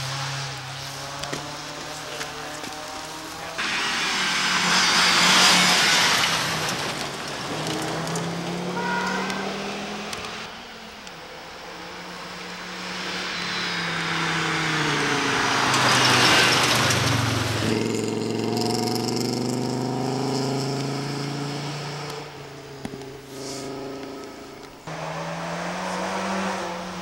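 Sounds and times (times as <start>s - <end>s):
tyres on gravel: 0.0s - 10.4s, 13.5s - 19.5s.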